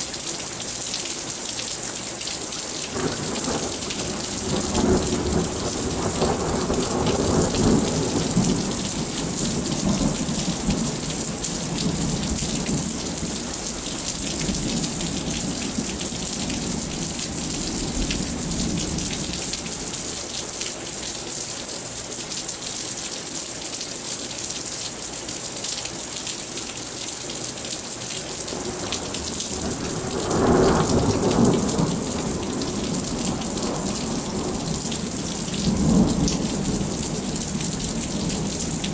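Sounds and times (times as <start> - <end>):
steady rain falling: 0.0 - 38.9
thunder rumbling: 3.0 - 19.4, 28.6 - 38.9.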